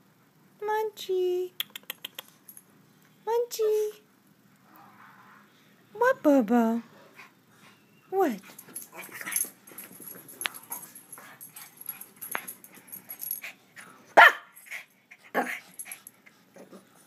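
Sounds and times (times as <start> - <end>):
dog barking sharply: 14.2 - 14.5.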